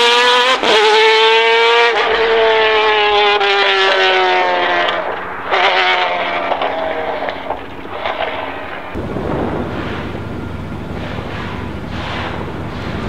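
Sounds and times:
engine with pitch falling: 0:00.0 - 0:13.0
low engine rumble: 0:01.9 - 0:13.0
wind noise on microphone: 0:03.6 - 0:13.0.

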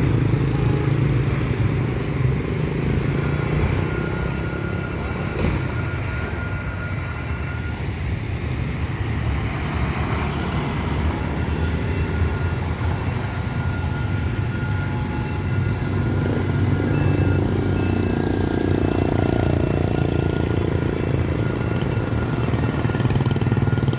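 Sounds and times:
cars passing: 0:00.0 - 0:23.9
motorbikes and scooters passing: 0:00.0 - 0:23.9.

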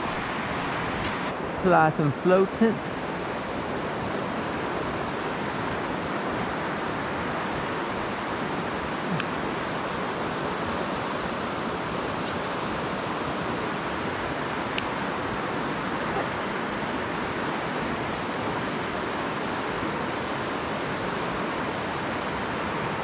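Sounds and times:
stream rushing over stones: 0:00.0 - 0:23.0.

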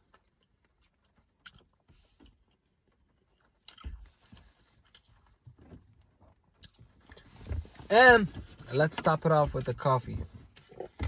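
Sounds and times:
person chewing: 0:00.0 - 0:05.4, 0:06.6 - 0:07.3, 0:10.6 - 0:11.0.

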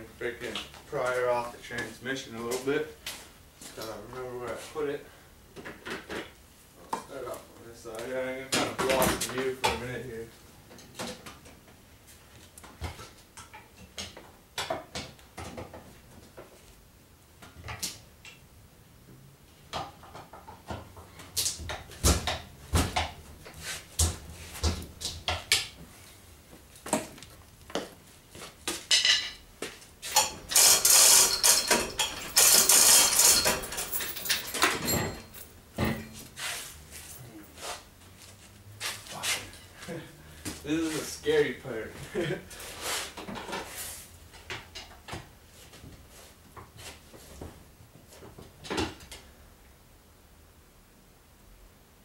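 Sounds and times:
metal tools clinking: 0:30.0 - 0:36.3
rattling and rustling: 0:30.0 - 0:37.3.

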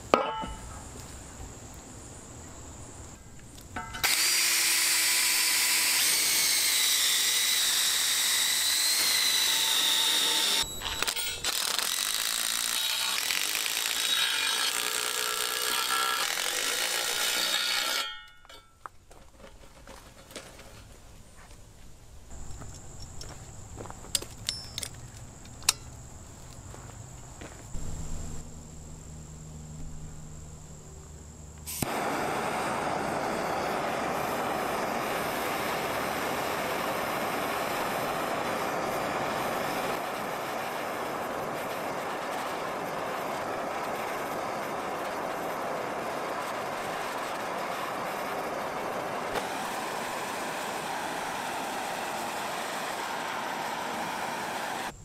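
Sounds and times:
gas torch hissing: 0:04.0 - 0:10.7, 0:31.7 - 0:55.0.

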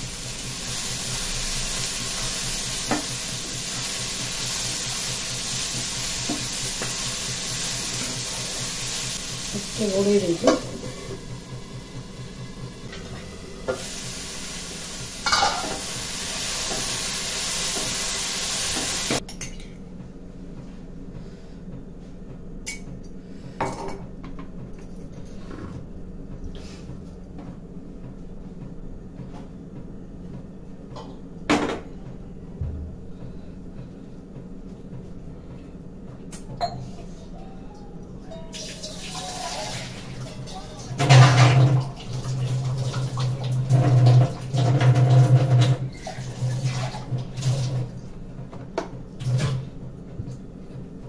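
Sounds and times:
sprouts sizzling in a pan: 0:00.0 - 0:19.2, 0:38.6 - 0:47.4
pan and lid clanking: 0:15.2 - 0:16.0.

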